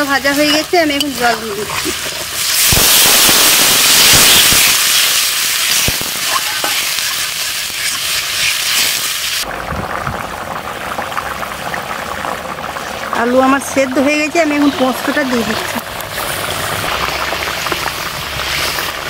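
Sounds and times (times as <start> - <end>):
bubbling simmer: 0.0 - 19.0
water hissing in hot oil: 0.0 - 19.0.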